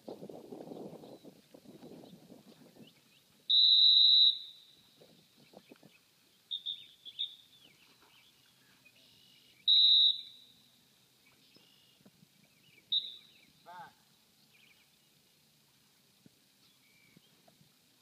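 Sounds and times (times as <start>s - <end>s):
dog-training whistle blasts: 3.5s - 4.7s, 6.5s - 7.4s, 9.7s - 10.5s, 12.9s - 13.3s.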